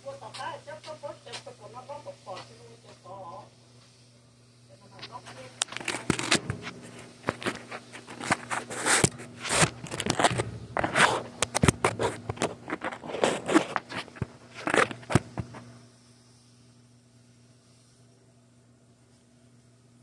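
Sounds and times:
faint steady hum: 0.0s - 20.0s
fingers rubbing on phone microphone: 5.0s - 15.7s.

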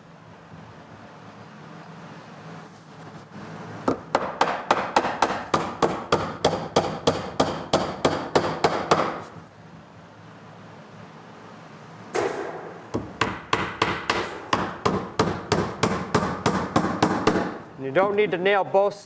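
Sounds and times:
hammer tapping nail into wood: 12.9s - 17.6s.

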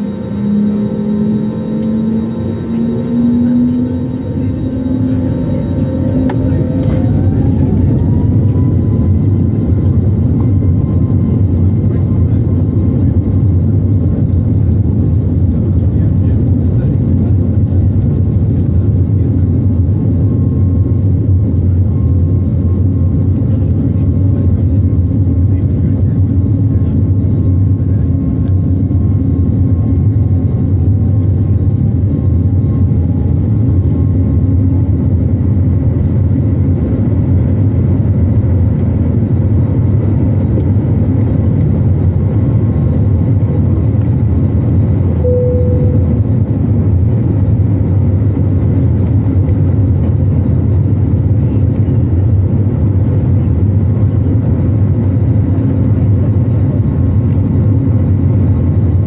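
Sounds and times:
jet engines roaring: 0.0s - 59.0s
short faint tone: 45.2s - 46.4s.

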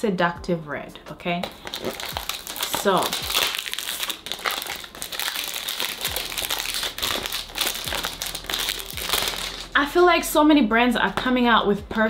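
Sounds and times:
cellophane crinkling: 1.4s - 9.8s.

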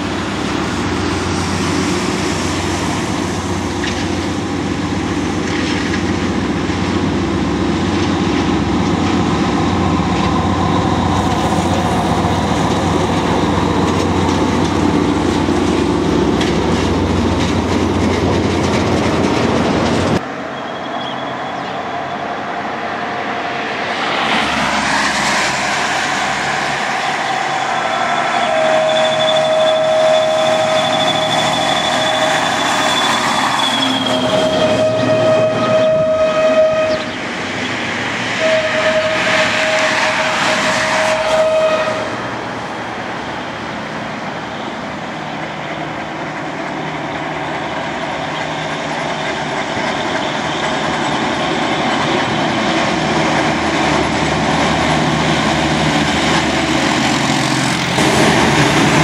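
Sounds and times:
diesel locomotive engine running: 0.0s - 59.0s
road vehicles: 0.0s - 59.0s
locomotive horn blasts: 27.6s - 37.2s, 38.4s - 42.3s.

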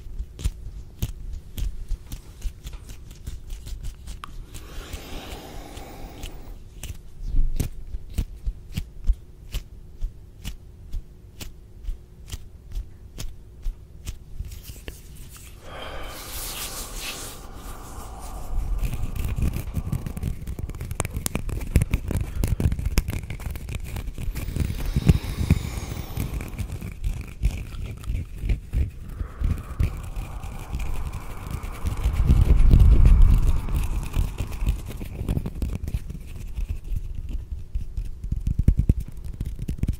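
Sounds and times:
hands rubbing at microphone: 14.5s - 37.4s.

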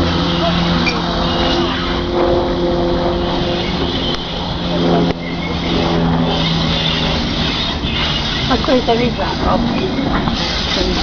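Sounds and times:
steam locomotive rumbling: 0.0s - 11.0s
steam hissing: 3.2s - 11.0s.

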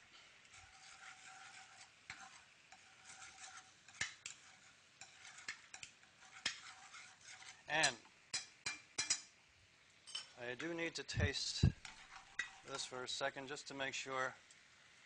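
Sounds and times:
utensil stirring in pan: 0.0s - 15.0s
metal clinks on pan: 7.8s - 9.3s.

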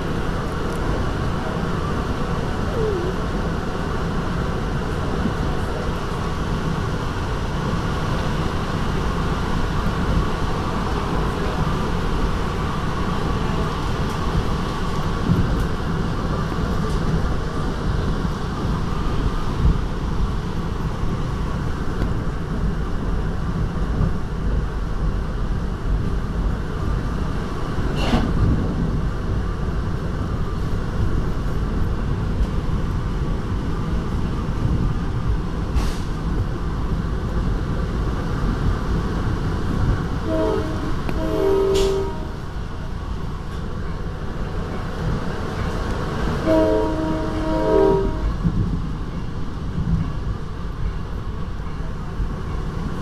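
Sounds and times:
train rumbling on rails: 0.0s - 53.0s
train horn blasts: 40.2s - 42.6s, 46.4s - 48.5s.

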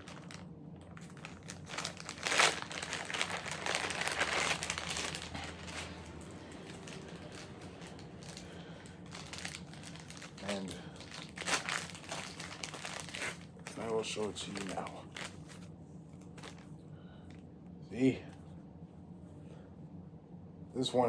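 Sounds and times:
packaging crinkling: 0.0s - 16.8s.

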